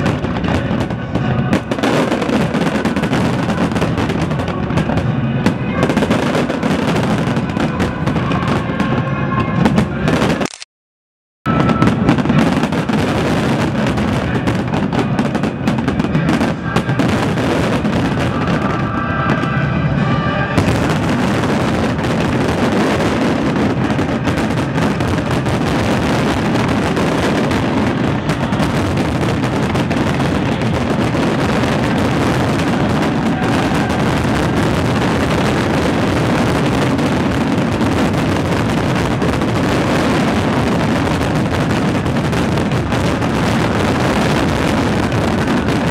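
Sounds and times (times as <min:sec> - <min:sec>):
music: 0:00.0 - 0:10.3, 0:11.5 - 0:34.8
fireworks bursting and crackling: 0:00.0 - 0:10.7, 0:11.5 - 0:45.9.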